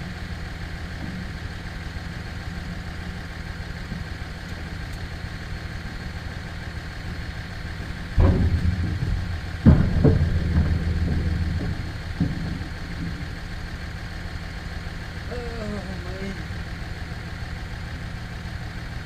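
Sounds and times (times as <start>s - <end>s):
pickup truck engine idling: 0.0s - 19.0s.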